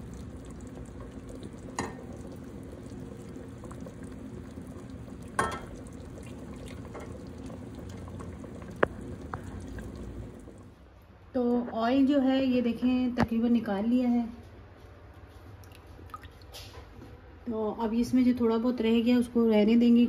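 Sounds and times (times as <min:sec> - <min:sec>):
pot simmering: 0:00.0 - 0:10.8.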